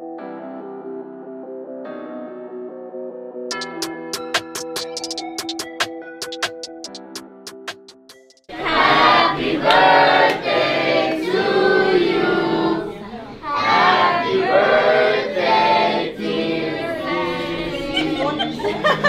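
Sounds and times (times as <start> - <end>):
group of people singing together: 8.5 - 19.0.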